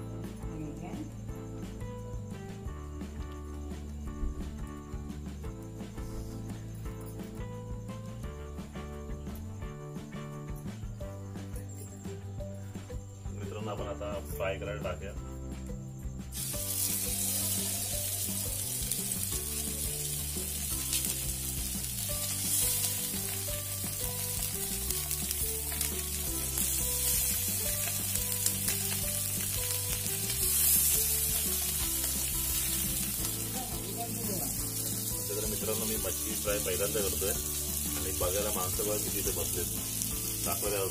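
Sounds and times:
fish sizzling in hot oil: 16.3 - 40.9.

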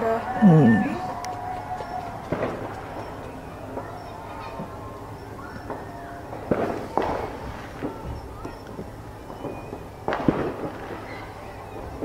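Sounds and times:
fireworks bursting: 0.8 - 12.0.

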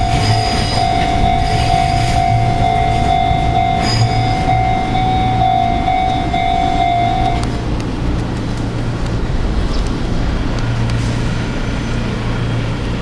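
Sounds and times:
level-crossing warning bell: 0.0 - 7.8
low rumble: 0.0 - 12.0.

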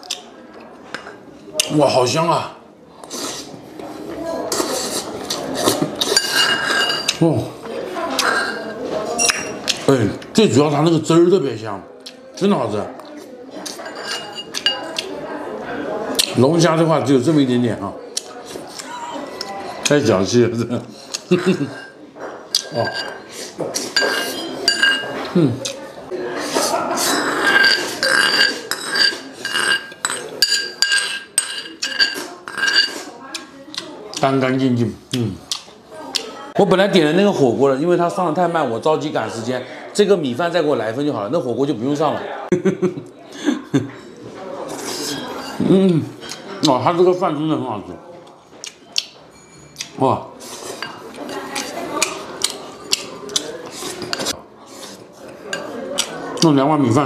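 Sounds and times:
spoon scraping ceramic bowl: 4.5 - 7.2, 8.1 - 9.8, 13.6 - 15.0, 20.8 - 25.7, 26.4 - 33.1, 44.7 - 46.4, 49.3 - 56.5
spoon clinking on ceramic bowl: 6.0 - 7.2, 13.7 - 14.9, 21.3 - 23.2, 23.9 - 25.3, 27.4 - 33.0.

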